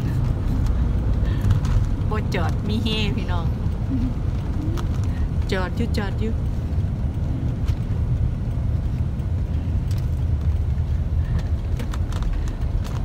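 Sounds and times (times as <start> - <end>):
van engine and road noise: 0.0 - 13.0.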